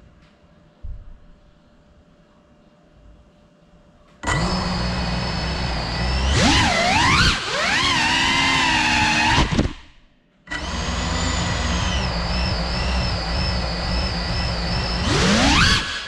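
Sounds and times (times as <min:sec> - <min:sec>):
quadcopter motors whining: 0:04.2 - 0:09.8, 0:10.5 - 0:16.0.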